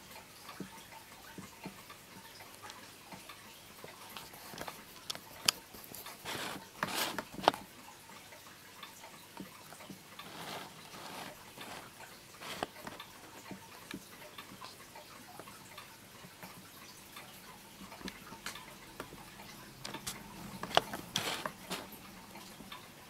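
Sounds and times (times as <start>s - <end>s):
wall clock ticking: 0.0s - 23.0s
rustling noise: 4.3s - 7.6s, 10.2s - 13.0s, 20.0s - 22.0s.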